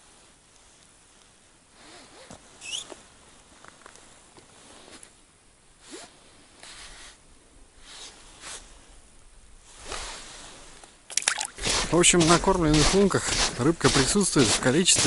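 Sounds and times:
jacket rustling and scraping: 1.7 - 5.2, 5.8 - 7.2, 7.8 - 8.9, 9.6 - 15.0.

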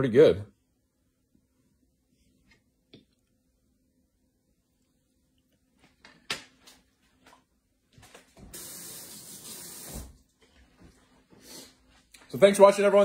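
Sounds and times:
steady hiss: 8.5 - 10.3.

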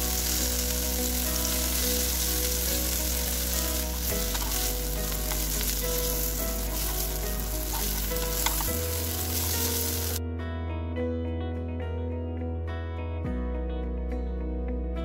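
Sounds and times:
patties sizzling in pan: 0.0 - 10.2
guitar music: 0.0 - 15.0.

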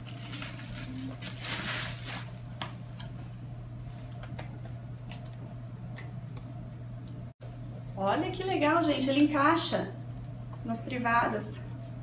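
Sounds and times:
plastic bag crinkling: 0.0 - 2.6
steady low hum: 0.0 - 12.0.

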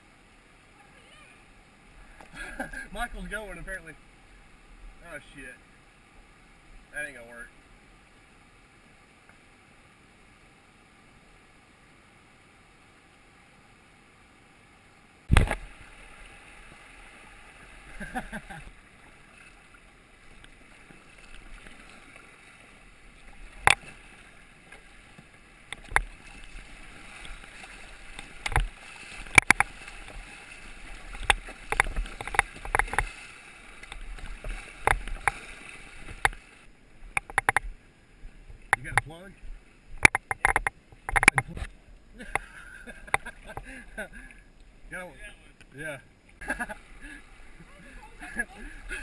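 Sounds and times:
faint steady hiss: 0.0 - 49.0
water rushing and splashing: 0.0 - 49.0
paddle and hull knocks: 23.2 - 33.2, 33.8 - 36.5, 37.1 - 37.8, 38.6 - 41.7.

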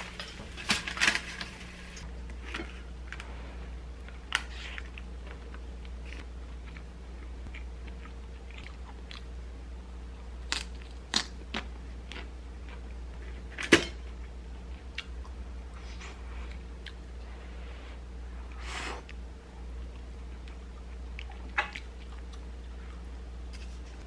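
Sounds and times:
low steady hum: 0.0 - 24.0
chewing: 4.0 - 9.4, 19.9 - 23.1.

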